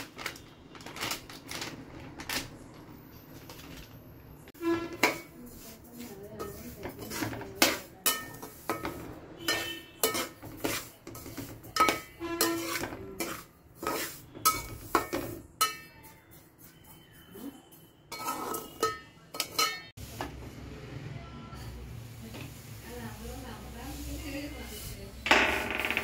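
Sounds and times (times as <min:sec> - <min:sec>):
metal spoon scraping a pot: 0:04.6 - 0:19.9.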